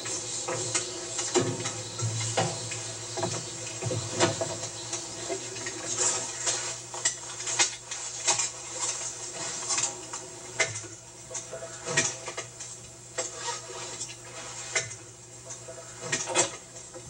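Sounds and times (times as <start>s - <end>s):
low steady hum: 0.0s - 11.9s
footsteps on metal steps: 1.4s - 5.7s.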